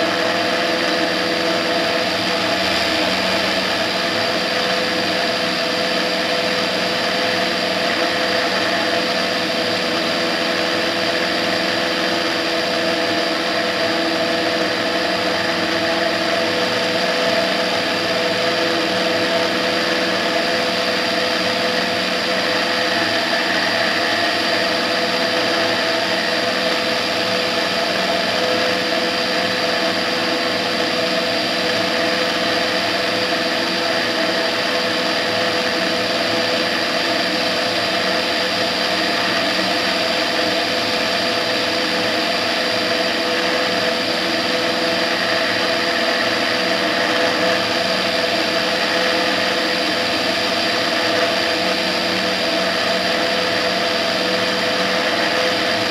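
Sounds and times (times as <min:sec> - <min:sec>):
aircraft engine and propeller drone: 0:00.0 - 0:55.9.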